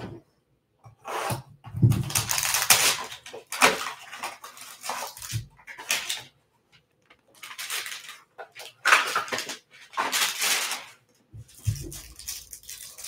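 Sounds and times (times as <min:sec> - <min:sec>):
packaging crinkling: 0:02.0 - 0:06.4, 0:07.2 - 0:13.0.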